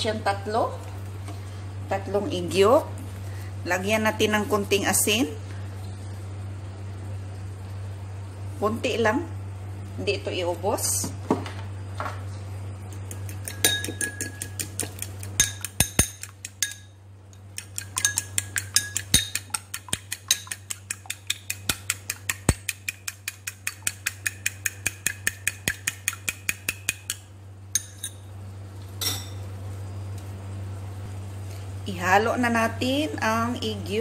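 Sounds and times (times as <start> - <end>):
steady low hum: 0.0 - 34.0
fork beating eggs in ceramic bowl: 12.9 - 28.2.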